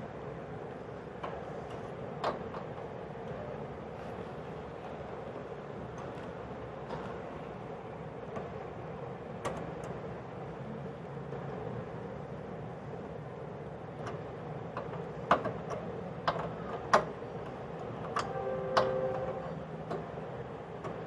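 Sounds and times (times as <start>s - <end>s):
steady background hum: 0.0s - 21.0s
short ringing tone: 18.2s - 19.5s.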